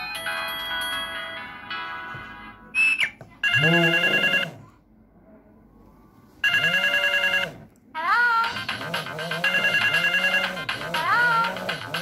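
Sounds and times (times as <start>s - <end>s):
phone ringtone two-tone ring: 3.4s - 4.5s, 6.4s - 7.6s, 9.4s - 10.8s.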